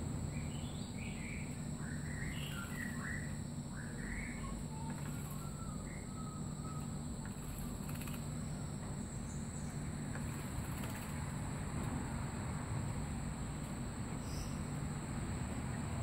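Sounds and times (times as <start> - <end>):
low outdoor hum: 0.0 - 16.0
faint bird chirps: 0.3 - 8.6, 14.2 - 14.7.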